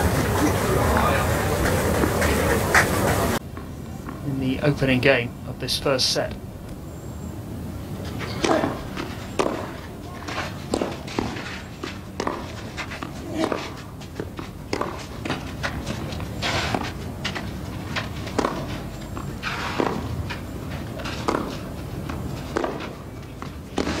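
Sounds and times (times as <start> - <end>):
tennis ball hit with rackets: 8.2 - 20.4, 21.0 - 24.0.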